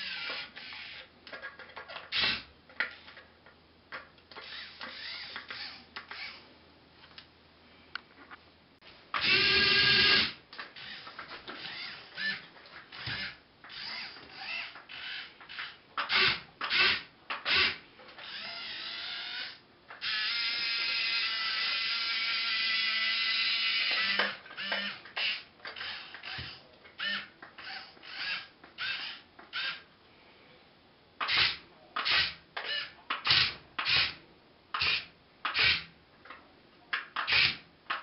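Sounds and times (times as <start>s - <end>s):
small electric motors whining: 4.4s - 6.4s, 9.2s - 12.4s, 13.0s - 29.8s.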